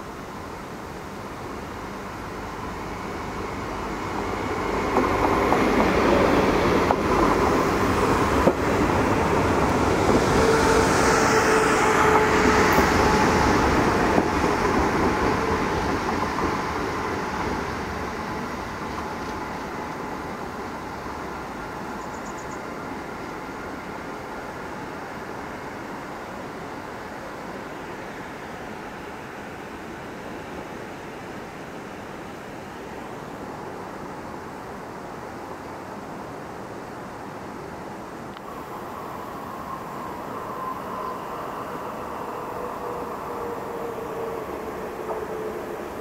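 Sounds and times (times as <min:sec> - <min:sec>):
steady train whine: 0:00.0 - 0:46.0
train wheels rumbling on rails: 0:02.0 - 0:25.4, 0:38.4 - 0:46.0.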